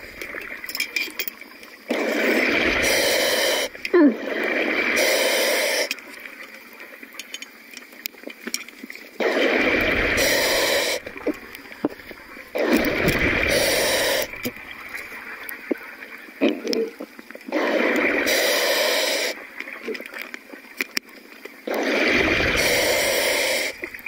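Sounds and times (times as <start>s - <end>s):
sharp ticks underwater: 0.0s - 24.0s
exhaled bubbles gushing underwater: 1.8s - 5.2s, 9.2s - 20.1s, 21.6s - 24.0s.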